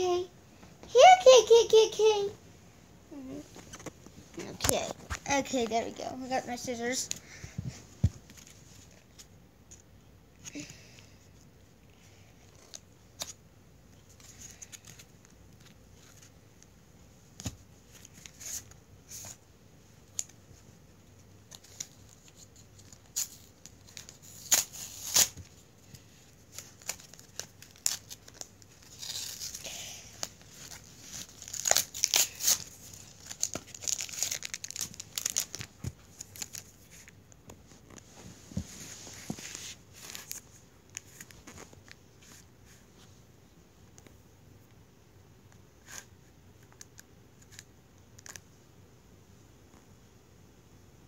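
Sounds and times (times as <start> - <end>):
foil wrapper crinkling: 26.6 - 29.7, 30.6 - 36.8.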